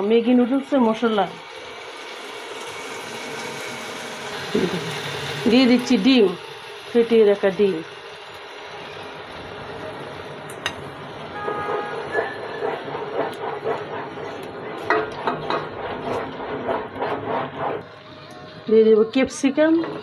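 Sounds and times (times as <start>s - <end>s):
vegetables sizzling in a pot: 0.0s - 12.2s
wooden spoon scraping a pot: 11.7s - 17.8s.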